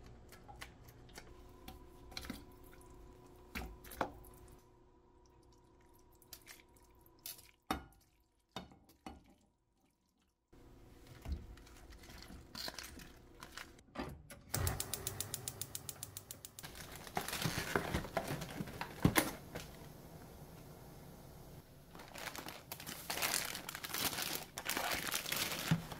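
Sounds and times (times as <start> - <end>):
plastic packaging crinkling: 11.6 - 13.8, 16.6 - 19.8, 21.9 - 25.9.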